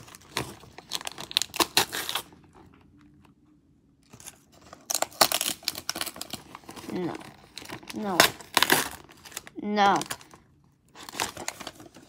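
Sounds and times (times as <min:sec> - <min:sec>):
wrapping paper tearing and crinkling: 0:00.0 - 0:02.6, 0:04.1 - 0:12.0.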